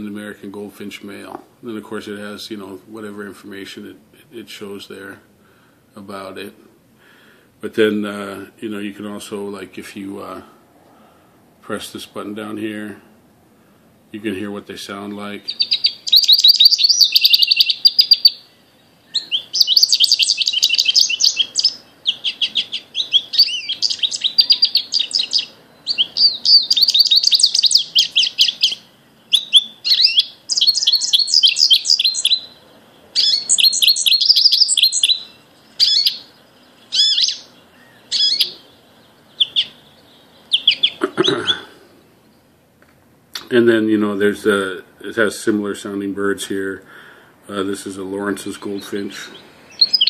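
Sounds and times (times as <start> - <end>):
finch song from a speaker: 14.2 - 42.6, 47.8 - 50.0.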